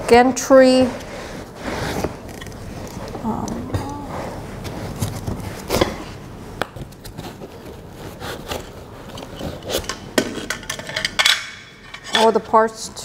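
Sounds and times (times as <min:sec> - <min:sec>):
hard parts knocking and scraping: 0:07.1 - 0:12.6.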